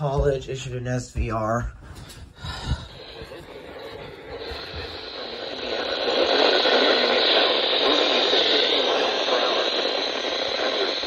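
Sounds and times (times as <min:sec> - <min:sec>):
radio static hiss: 0:02.8 - 0:11.0.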